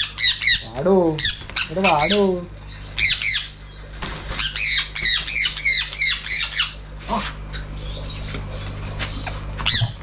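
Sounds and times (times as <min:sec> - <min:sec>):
parrot harsh squawks: 0:04.4 - 0:06.8.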